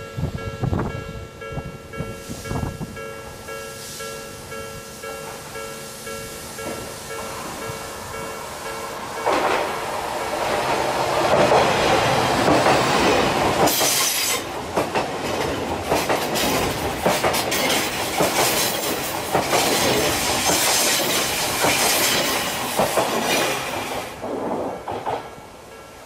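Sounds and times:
electric train rumbling past: 0.0s - 26.0s
wheels clattering over rail joints: 9.0s - 25.5s.

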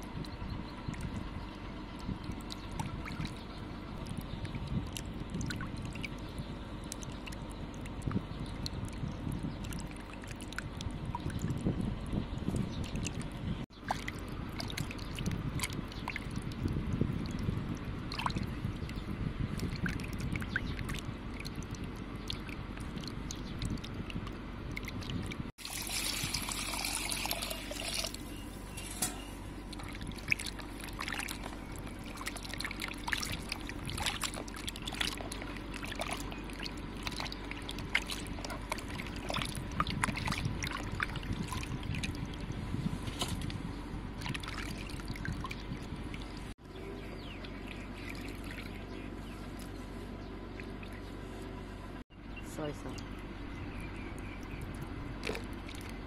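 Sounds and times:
water sloshing in a bowl: 0.0s - 52.0s, 52.8s - 56.0s
water pouring into a bowl: 25.6s - 28.2s.

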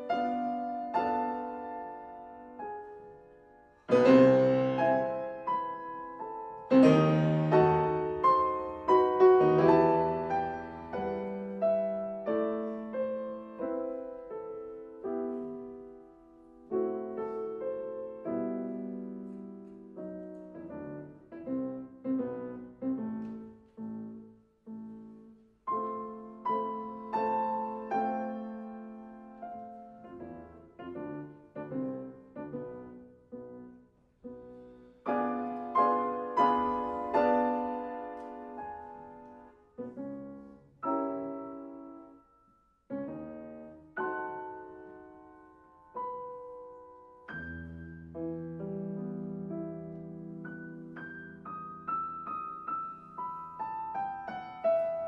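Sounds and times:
two pianos playing classical music: 0.0s - 55.0s.

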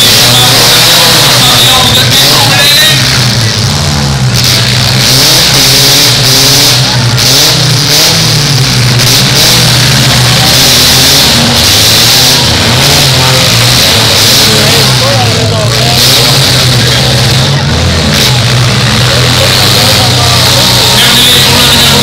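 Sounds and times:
car engines revving hard: 0.0s - 22.0s.

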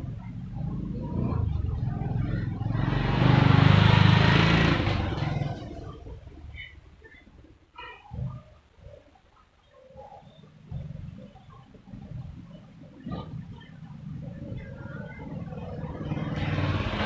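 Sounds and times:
motorcycle passing by: 0.1s - 6.2s, 14.2s - 17.0s.

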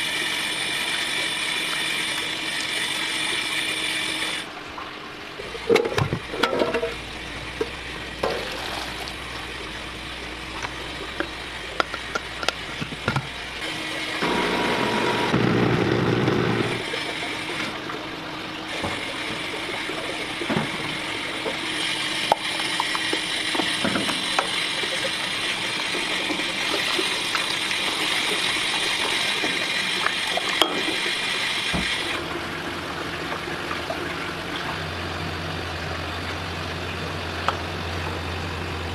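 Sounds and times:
steel containers and utensils clinking: 5.6s - 7.0s.

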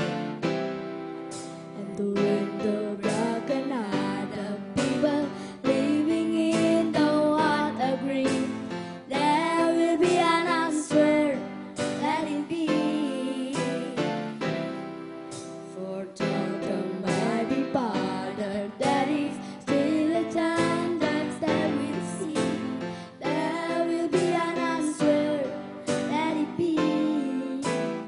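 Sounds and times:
women singing: 1.8s - 14.2s, 15.8s - 28.0s.

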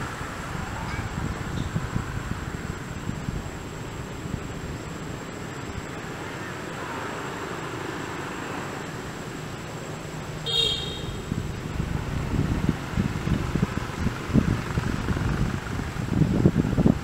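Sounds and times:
wind rumbling on microphone: 0.0s - 7.8s, 8.8s - 17.0s
background hiss: 0.0s - 17.0s
short horn toot: 10.5s - 11.3s.

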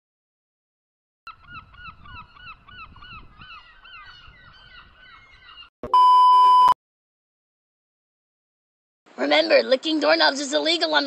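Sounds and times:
seagulls calling: 1.3s - 5.7s
loud steady electronic beep: 5.8s - 6.8s.

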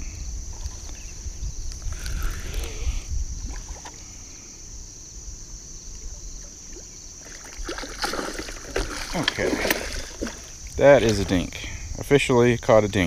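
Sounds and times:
wind rumbling on microphone: 0.0s - 6.7s, 7.6s - 13.0s
high-pitched hiss: 0.0s - 7.6s.

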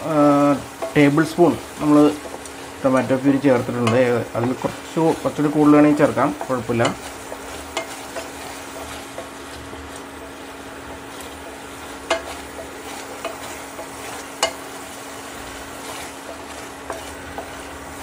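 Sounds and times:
puree sizzling in a pan: 0.0s - 18.0s
spatula clicking against pan: 12.0s - 14.6s.

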